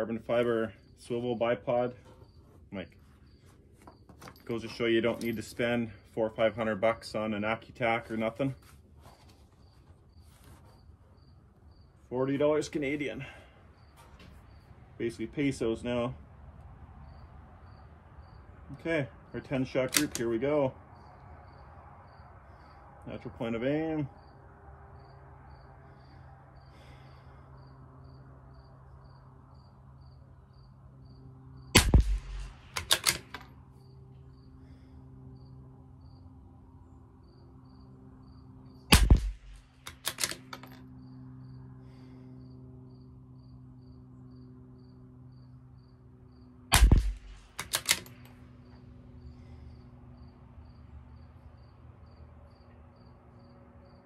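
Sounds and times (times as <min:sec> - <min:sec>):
crickets chirping: 0:00.0 - 0:54.0
rifle bolt clicks: 0:19.9 - 0:20.3, 0:31.8 - 0:33.5, 0:39.0 - 0:40.8, 0:46.7 - 0:48.4
rifle shots: 0:31.7 - 0:33.4, 0:38.9 - 0:40.4, 0:46.7 - 0:48.1.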